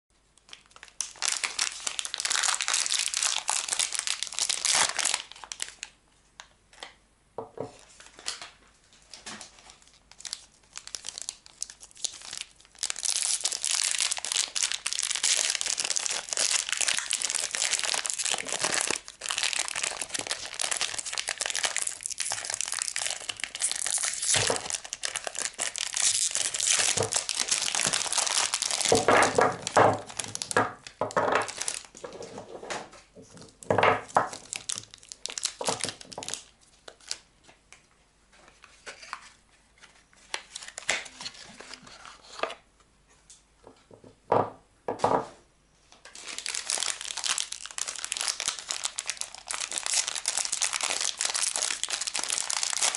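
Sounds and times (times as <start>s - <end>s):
paper wrappers crinkling and tearing: 0.5s - 6.0s, 7.8s - 32.4s, 33.4s - 37.2s, 38.5s - 42.6s, 46.1s - 52.9s
soap bars knocking on wooden table: 44.0s - 45.2s.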